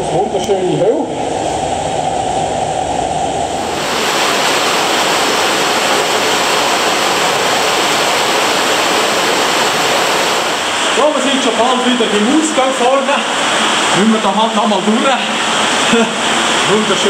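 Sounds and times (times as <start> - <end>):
cave stream rushing: 3.5 - 17.0.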